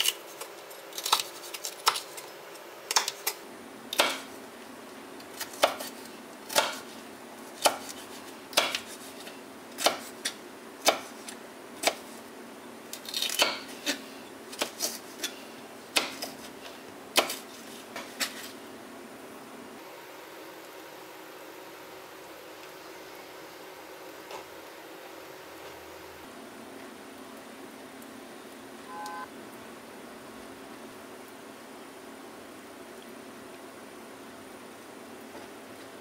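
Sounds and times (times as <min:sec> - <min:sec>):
knife chopping on cutting board: 0:07.6 - 0:09.0, 0:09.8 - 0:11.1, 0:16.0 - 0:16.4, 0:17.2 - 0:17.4.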